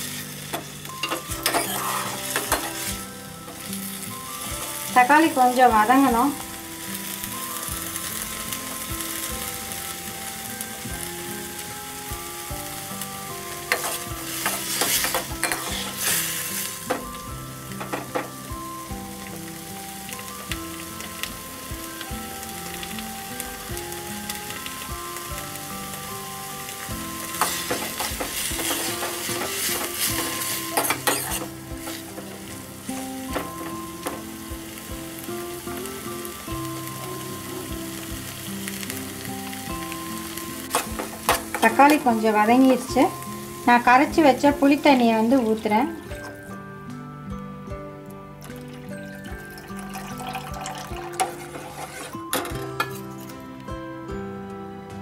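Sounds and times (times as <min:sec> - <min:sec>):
steel ladle scraping a pan: 0:00.0 - 0:03.8, 0:13.7 - 0:17.0, 0:27.3 - 0:32.6, 0:51.1 - 0:53.5
tomatoes sizzling in a pan: 0:00.0 - 0:54.4.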